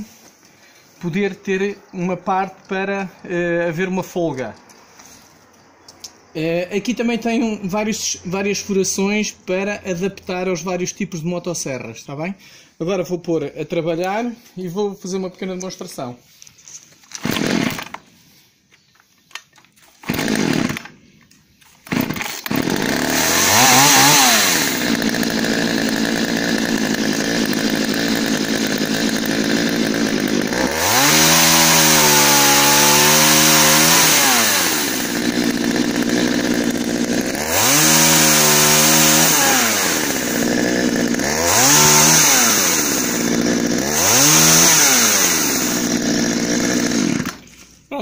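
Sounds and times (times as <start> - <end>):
chainsaw engine revving: 17.2 - 18.0, 20.0 - 21.0, 21.8 - 47.6.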